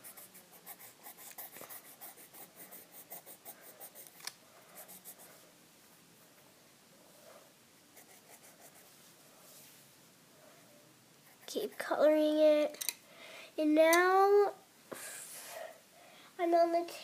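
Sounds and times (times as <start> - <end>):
colored pencil scratching on paper: 0.0 - 5.4, 7.9 - 9.0, 11.2 - 12.1.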